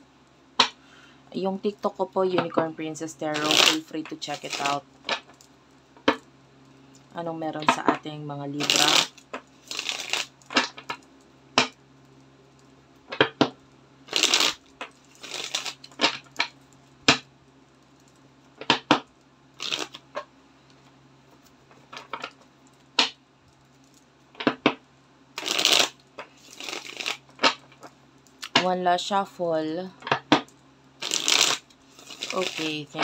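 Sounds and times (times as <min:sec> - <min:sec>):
cards being shuffled: 0:03.3 - 0:05.4, 0:08.6 - 0:11.0, 0:13.1 - 0:16.5, 0:19.6 - 0:20.3, 0:25.4 - 0:28.7, 0:30.3 - 0:33.0.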